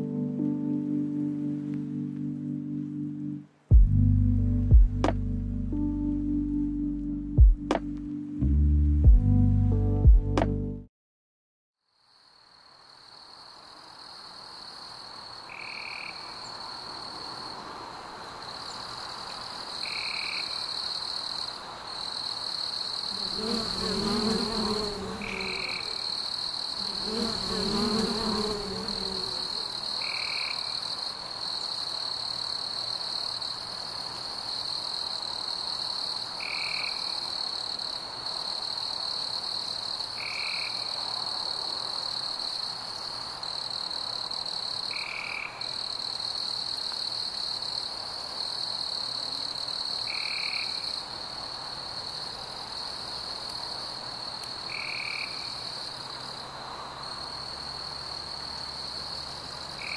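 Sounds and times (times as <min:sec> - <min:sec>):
frog call: 0:15.5 - 0:16.5, 0:19.8 - 0:20.7
high-pitched insect drone: 0:23.1 - 0:30.5.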